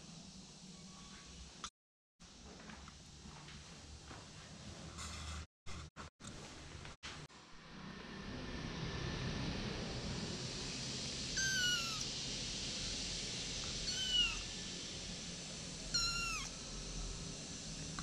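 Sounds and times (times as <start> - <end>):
steady hiss: 0.0 - 1.6, 10.0 - 18.0
kitten meowing: 11.4 - 12.1, 13.8 - 14.5, 15.9 - 16.5.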